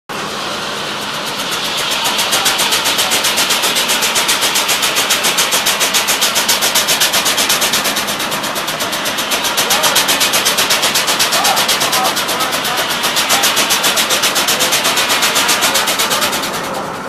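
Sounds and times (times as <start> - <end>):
steam engine puffing: 0.1 - 17.0.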